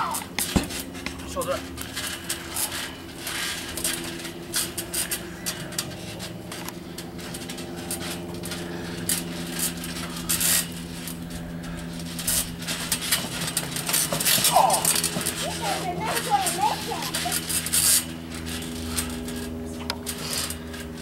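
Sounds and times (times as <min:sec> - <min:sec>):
steady low hum: 0:00.0 - 0:21.0
bodies thumping on trampoline: 0:00.4 - 0:01.0, 0:11.9 - 0:19.3.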